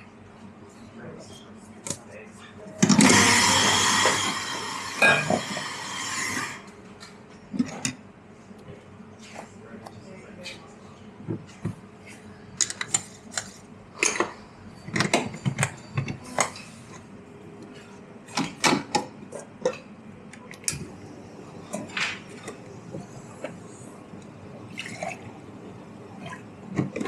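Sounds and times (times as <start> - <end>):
cups and dishes clinking: 2.9 - 6.6, 14.0 - 17.0.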